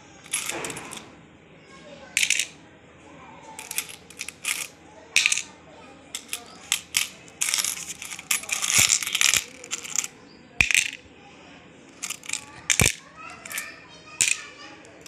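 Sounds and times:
coins clinking in bowls: 0.2 - 1.0, 2.2 - 2.6, 3.6 - 5.5, 6.2 - 11.0, 12.0 - 15.0.

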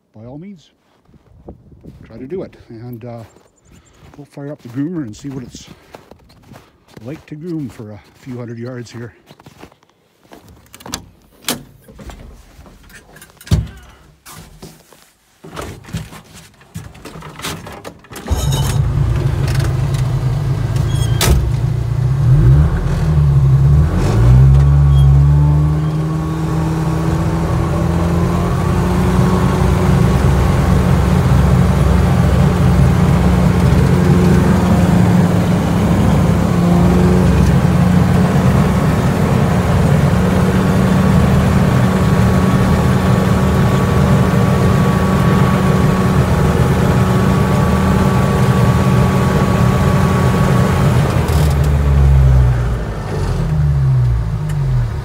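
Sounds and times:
engine starting and running: 17.0 - 55.0.

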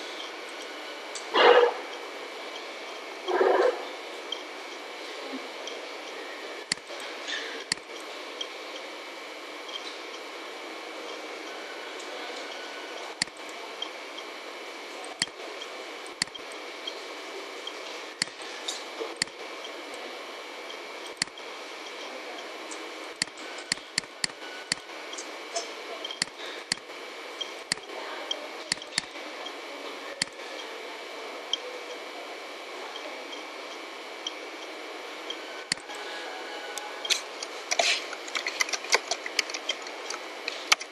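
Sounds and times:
computer mouse clicks: 6.6 - 6.9, 21.1 - 21.4, 22.7 - 27.9, 28.7 - 29.2, 37.0 - 40.9
keyboard typing: 37.1 - 40.9.

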